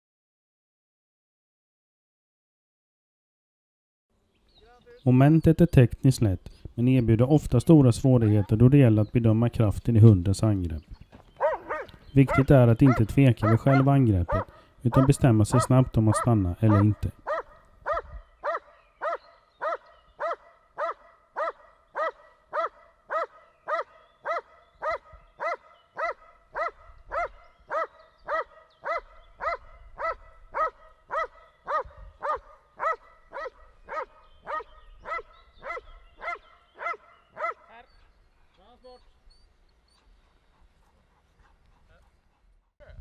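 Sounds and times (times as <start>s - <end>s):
dog barking: 8.2s - 8.6s, 11.4s - 37.8s.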